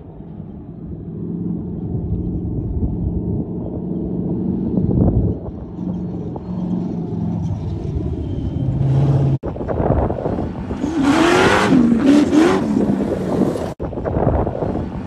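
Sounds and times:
sand car engine revving: 10.4 - 13.8.

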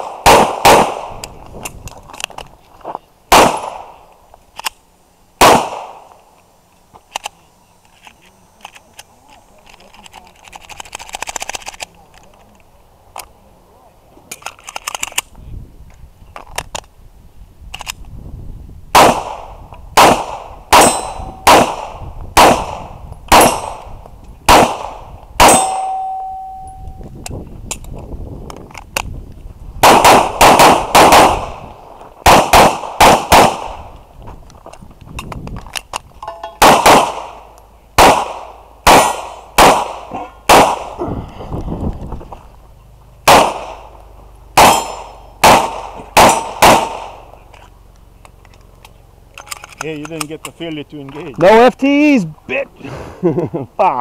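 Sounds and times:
pistol shots: 0.0 - 1.2, 3.3 - 4.0, 5.4 - 6.1, 18.9 - 23.9, 24.5 - 26.5, 29.8 - 34.0, 36.6 - 41.0, 43.2 - 44.0, 44.6 - 47.3
gun handling clicks: 1.2 - 2.5, 4.5 - 4.9, 6.0 - 13.3, 14.3 - 16.9, 17.7 - 18.1, 27.2 - 29.2, 33.9 - 38.4, 43.3 - 51.3
steel target ringing: 20.7 - 21.5, 25.4 - 27.1, 36.2 - 36.6, 44.6 - 45.4.

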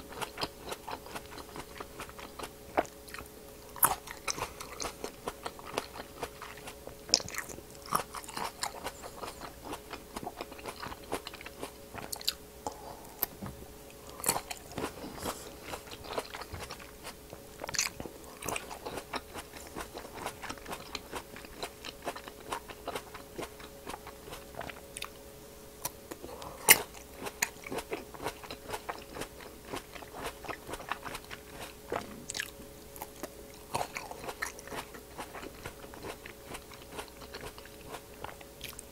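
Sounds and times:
grapes being chewed: 0.0 - 25.2, 25.8 - 38.9
faint steady hum: 0.0 - 38.9.

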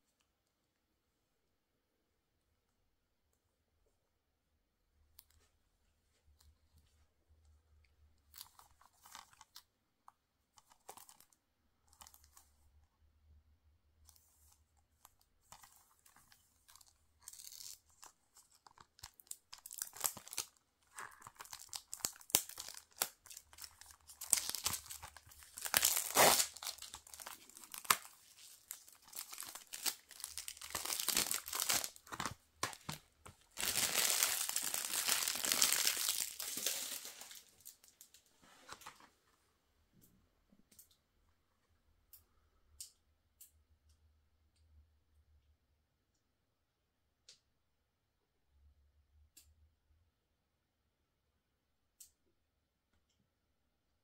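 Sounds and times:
plastic wrap crinkling: 15.4 - 38.1.

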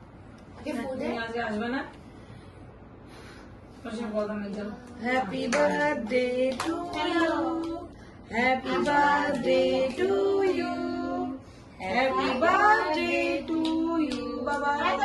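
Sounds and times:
women and child singing: 5.0 - 15.0.

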